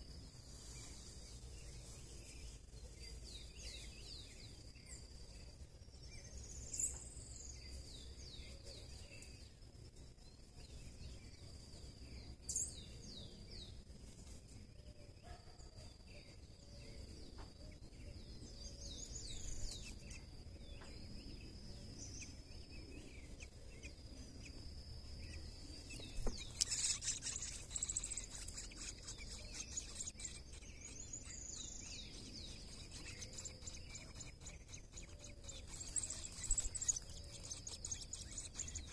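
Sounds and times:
birds chirping: 0.0s - 9.6s, 10.2s - 38.9s
high-pitched insect drone: 19.1s - 38.9s.

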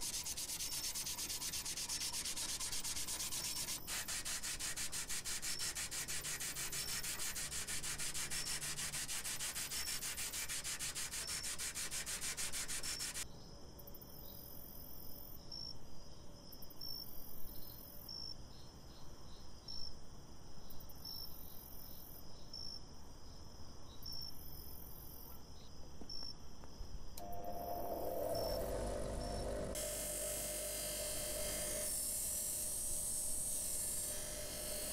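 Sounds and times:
wet scrubbing of metal cylinder: 0.0s - 13.2s
bench grinder motor humming: 27.2s - 34.9s.

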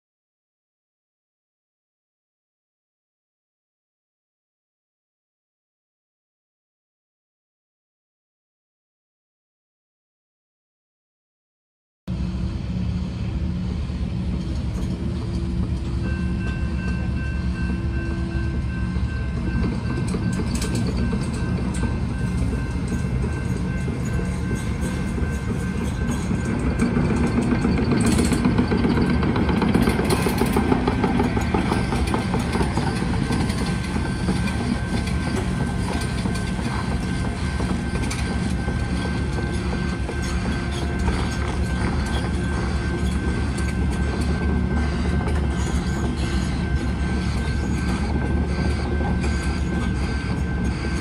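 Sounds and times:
diesel machinery engine rumbling: 12.1s - 51.0s.

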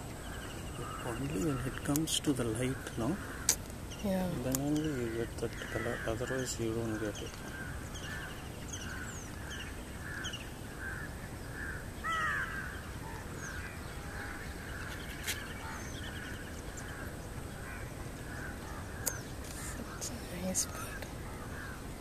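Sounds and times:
sharp clicks: 3.5s - 3.8s.

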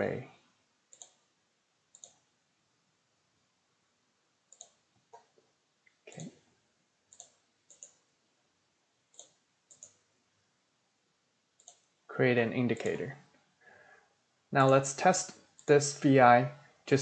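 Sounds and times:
computer mouse clicks: 0.9s - 1.3s, 1.9s - 2.3s, 4.5s - 6.4s, 7.1s - 8.0s, 9.1s - 10.0s, 11.6s - 11.9s.

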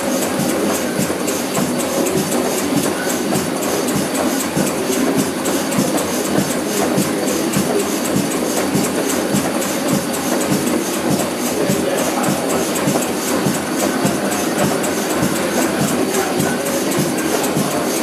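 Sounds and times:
miniature engine clattering: 0.1s - 18.0s.

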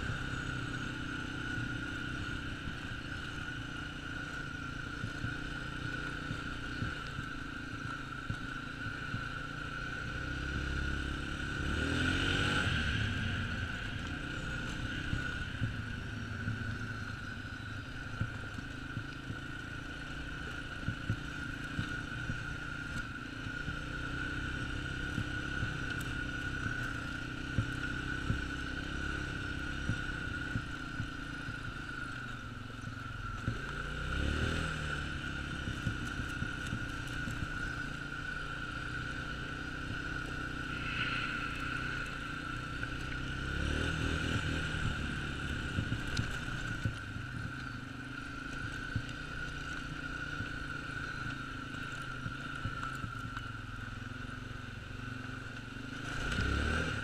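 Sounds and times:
atv engine running: 0.0s - 57.0s.

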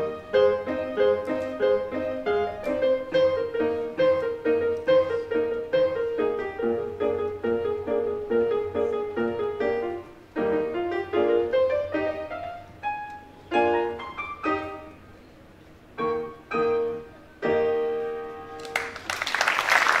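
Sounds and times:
grand piano playing: 0.0s - 18.9s
audience applauding: 18.6s - 20.0s.

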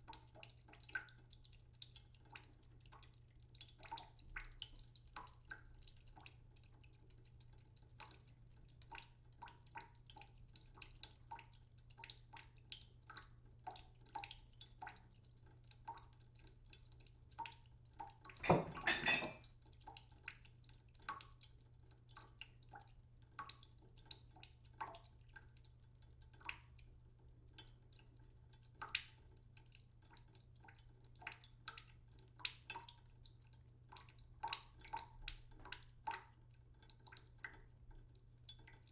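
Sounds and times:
hot oil crackling and popping: 0.0s - 38.9s
ceramic plate set down: 18.4s - 19.4s.

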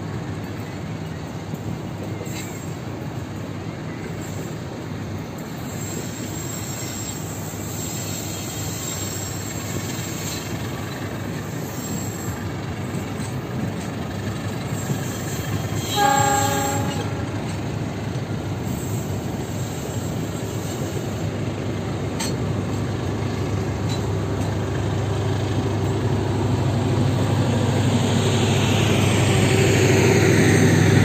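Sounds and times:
train wheels rumbling on rails: 0.0s - 31.0s
high wheel squeal: 5.6s - 12.7s, 14.5s - 17.8s
horn-like pitched tone: 15.8s - 17.4s.

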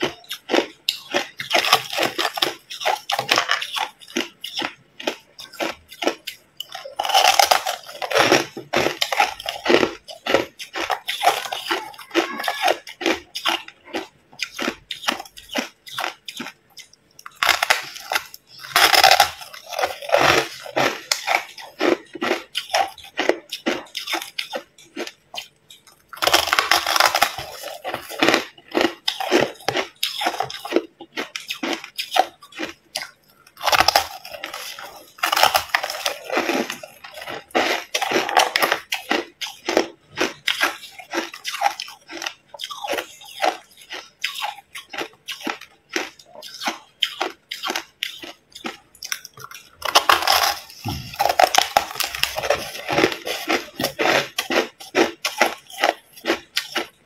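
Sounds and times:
crackling ice crunches: 17.3s - 22.4s, 26.2s - 30.8s, 33.6s - 38.8s, 48.2s - 56.8s
ice being bitten: 26.2s - 57.0s.

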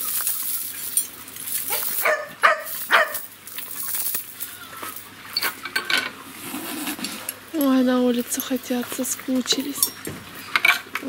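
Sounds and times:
dog yelping: 1.7s - 3.2s.

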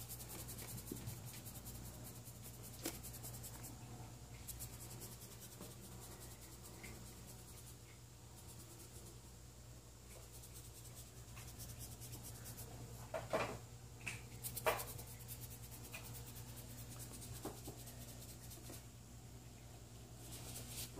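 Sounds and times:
claws scratching cardboard: 0.0s - 3.7s, 14.4s - 18.8s, 20.2s - 20.9s
steady low hum: 0.0s - 20.9s.

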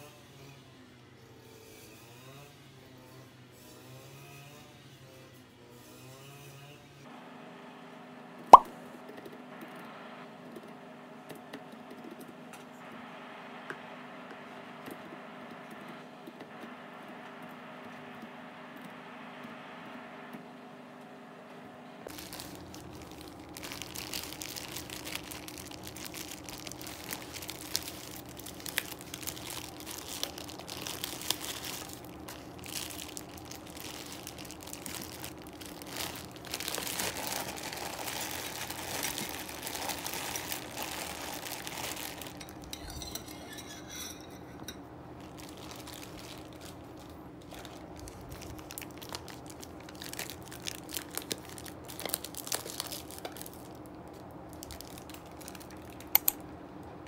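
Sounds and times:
plastic bag crinkling: 22.1s - 56.4s
dishes clinking: 42.3s - 44.9s.

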